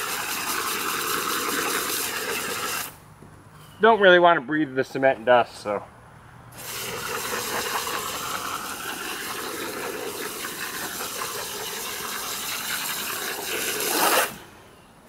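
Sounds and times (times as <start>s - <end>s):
hose water spraying into cement: 0.0s - 3.0s, 6.6s - 14.5s.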